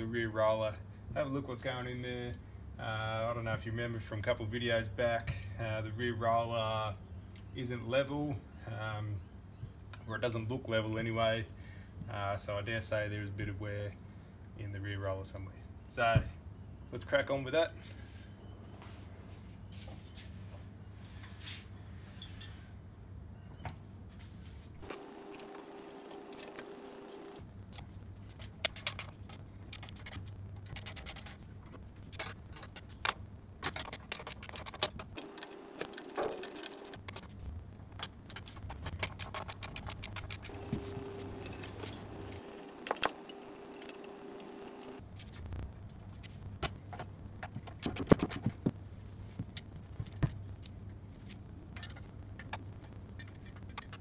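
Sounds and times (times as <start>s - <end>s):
sharp clicks: 24.8s - 37.3s, 38.0s - 45.0s, 47.4s - 48.7s
metal clinks and scrapes: 28.2s - 33.0s, 33.6s - 37.3s, 38.3s - 45.0s.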